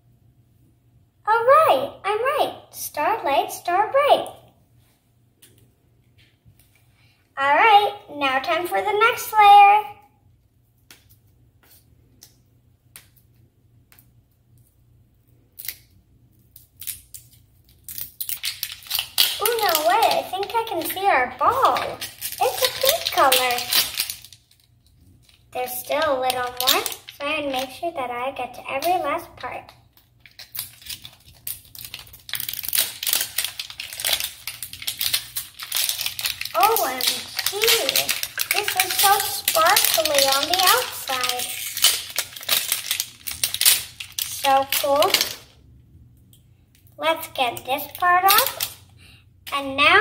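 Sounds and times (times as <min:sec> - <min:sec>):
plastic wrapping crinkling: 0:15.5 - 0:45.6, 0:47.5 - 0:48.8.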